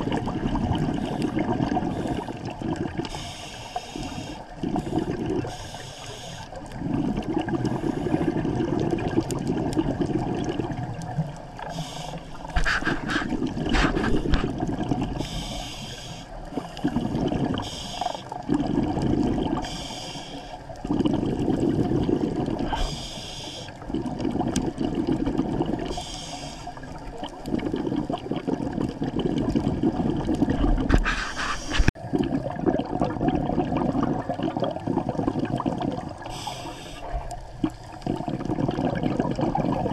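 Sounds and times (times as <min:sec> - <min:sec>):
diver inhaling through regulator: 0:00.9 - 0:07.0, 0:11.6 - 0:20.8, 0:21.4 - 0:24.0, 0:25.7 - 0:27.8, 0:30.8 - 0:32.0, 0:36.2 - 0:38.4
rumbling exhaust bubbles: 0:18.4 - 0:19.7, 0:20.8 - 0:22.8, 0:23.8 - 0:26.0, 0:26.8 - 0:36.3, 0:37.2 - 0:39.9.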